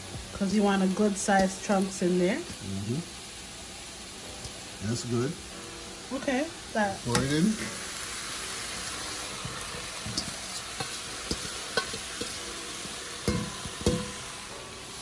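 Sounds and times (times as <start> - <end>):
food sizzling in a pot: 0.0 - 15.0
scraping on a metal bowl: 9.4 - 12.4.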